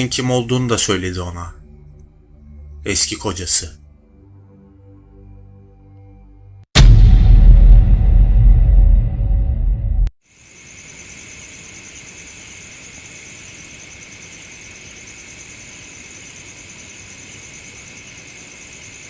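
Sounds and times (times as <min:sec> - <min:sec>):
insects trilling: 0:10.2 - 0:19.0.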